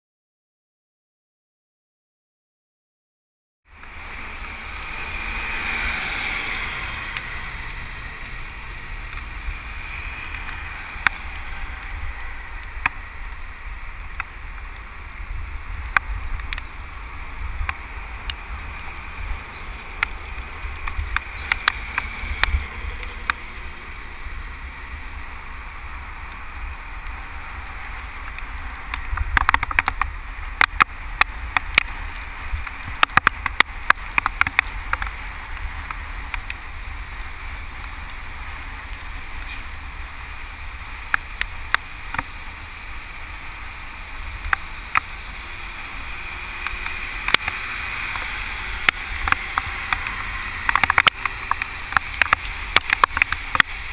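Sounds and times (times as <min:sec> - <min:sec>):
tyre road hiss: 0:03.7 - 0:53.9
wind rumble on microphone: 0:03.8 - 0:53.9
sharp clicks and taps: 0:28.3 - 0:31.9, 0:46.6 - 0:53.7.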